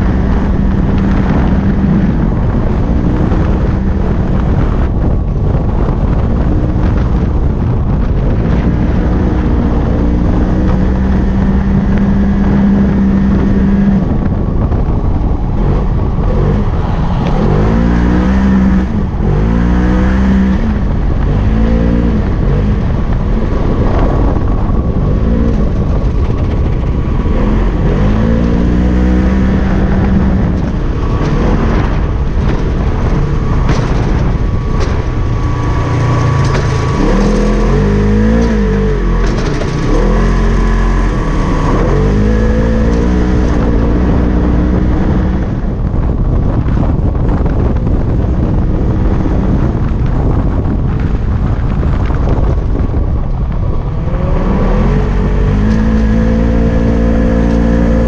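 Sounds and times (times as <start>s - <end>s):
engine revving under load: 0.0s - 58.0s
steady rushing noise: 0.0s - 58.0s.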